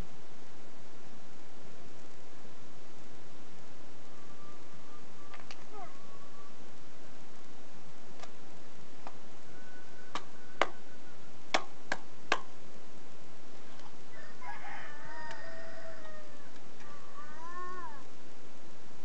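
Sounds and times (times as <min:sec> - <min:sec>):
steady hiss: 0:00.0 - 0:19.0
drawn-out animal call: 0:14.2 - 0:18.1.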